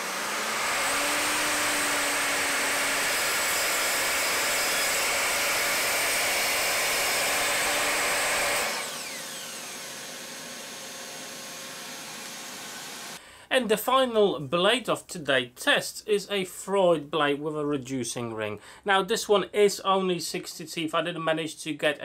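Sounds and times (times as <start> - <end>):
mitre saw crosscutting plywood: 0.0 - 13.2
saw blade whine running down: 0.0 - 13.2.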